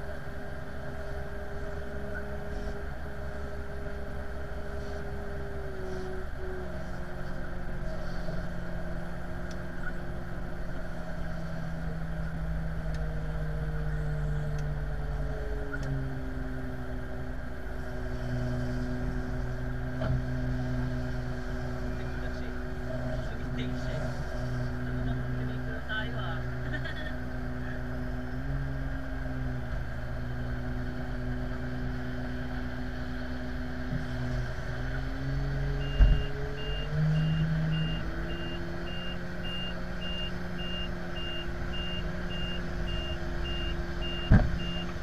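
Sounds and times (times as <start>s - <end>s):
airliner engine drone: 0.0s - 29.0s.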